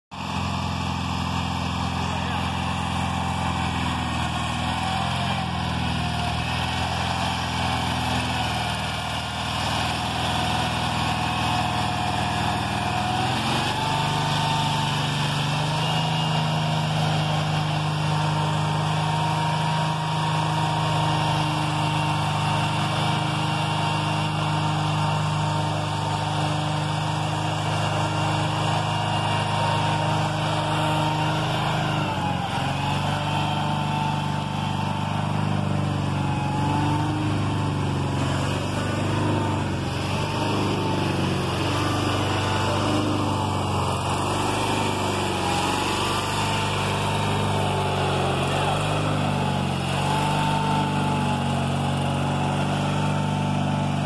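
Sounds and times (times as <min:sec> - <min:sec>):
garden tractor engine running: 0:00.1 - 0:54.0
blade pushing snow: 0:00.2 - 0:54.0.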